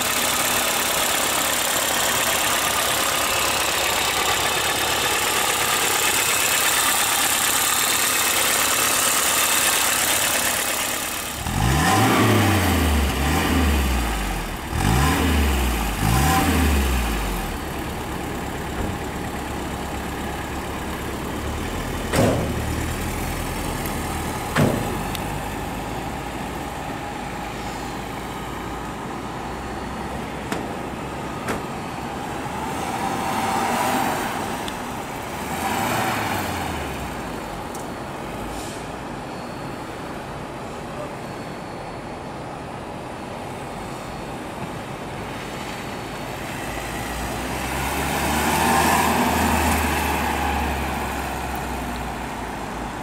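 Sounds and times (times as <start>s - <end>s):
car engine running and revving: 0.0s - 26.6s, 32.5s - 37.5s.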